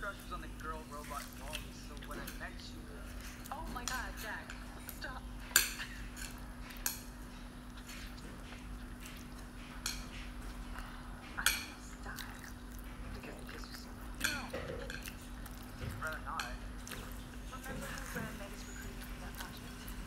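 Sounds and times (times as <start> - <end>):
steady low hum: 0.0 - 20.0
chopsticks clinking on ceramic bowl: 14.2 - 18.4.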